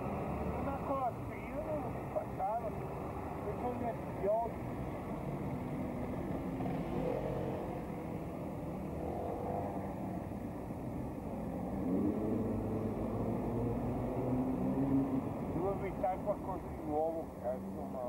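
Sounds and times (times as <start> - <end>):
traffic rumble: 0.0 - 18.0
engines accelerating past: 5.7 - 10.2, 11.5 - 16.5.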